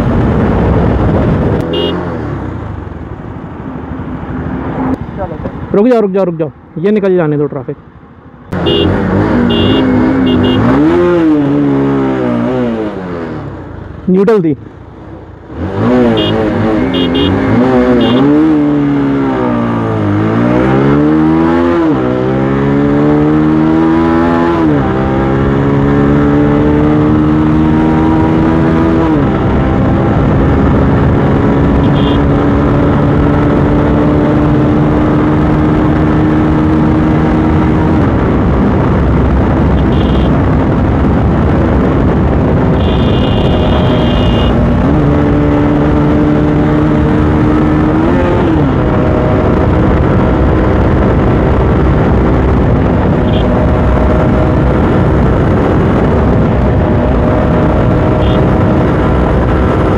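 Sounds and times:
motorcycle engine accelerating: 0:08.5 - 0:13.7, 0:15.4 - 0:59.9.

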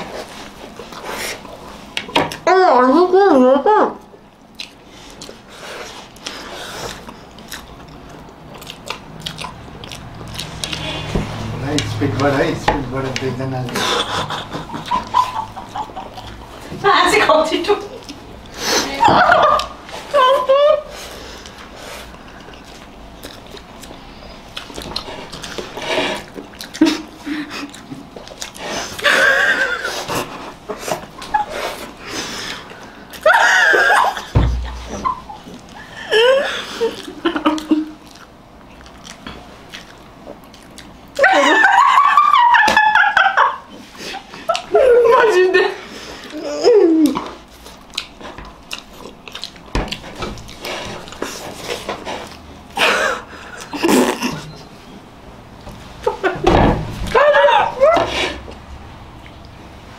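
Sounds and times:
wet smacking and chewing: 0:04.2 - 0:12.5, 0:13.1 - 0:16.8, 0:17.9 - 0:18.6, 0:19.2 - 0:20.1, 0:21.0 - 0:35.9, 0:36.8 - 0:41.2, 0:43.7 - 0:44.8, 0:47.0 - 0:54.7
wet smacking mouth noises: 0:04.4 - 0:12.3, 0:22.4 - 0:29.0, 0:47.0 - 0:52.5
women laughing: 0:13.7 - 0:17.0, 0:18.8 - 0:21.0, 0:29.0 - 0:30.3, 0:33.2 - 0:38.0, 0:41.2 - 0:47.2, 0:52.8 - 0:54.6, 0:56.0 - 0:56.5, 0:57.1 - 0:58.4.

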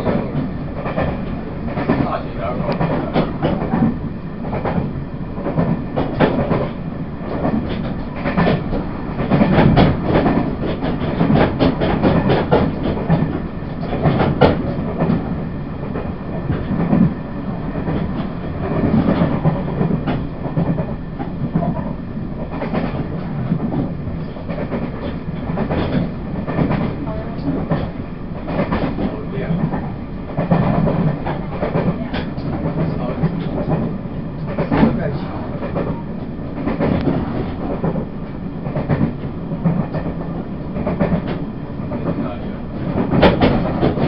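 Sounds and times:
train wheels rumbling on rails: 0:00.0 - 0:44.0
wheels clacking and knocking: 0:04.6 - 0:15.2, 0:42.9 - 0:44.0.

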